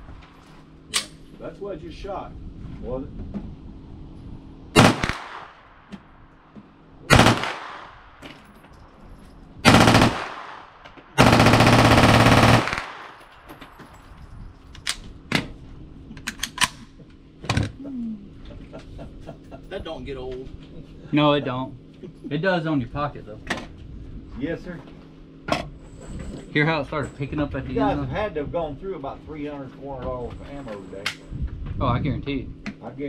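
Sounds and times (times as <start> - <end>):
rapid gunshots: 4.8 - 5.7, 7.1 - 8.0, 9.6 - 13.2.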